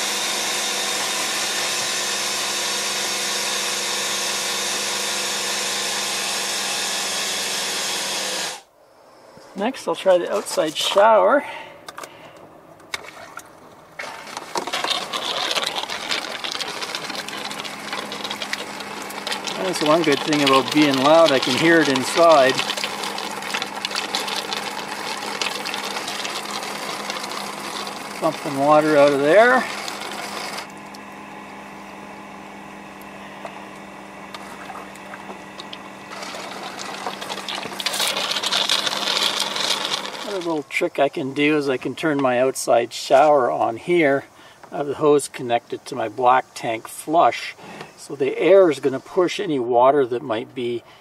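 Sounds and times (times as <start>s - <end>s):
air compressor humming: 0.0s - 49.4s
air and water sputtering from hose: 14.0s - 31.1s, 34.3s - 49.1s.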